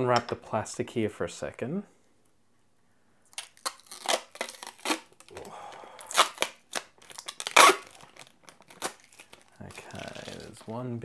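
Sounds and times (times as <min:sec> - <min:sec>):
plastic film being peeled off: 0:03.3 - 0:05.4, 0:06.0 - 0:10.7.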